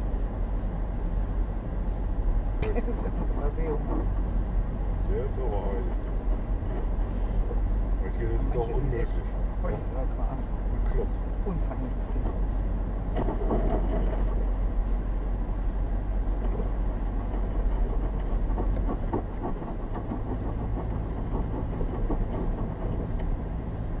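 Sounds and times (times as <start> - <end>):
car tyres and engine rumble: 0.0 - 24.0.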